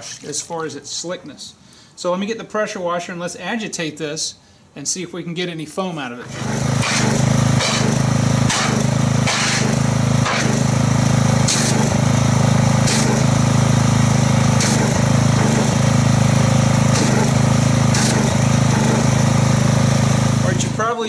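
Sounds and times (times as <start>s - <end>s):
pressure washer running: 6.2s - 21.0s
spray churning soapy water: 6.3s - 20.8s.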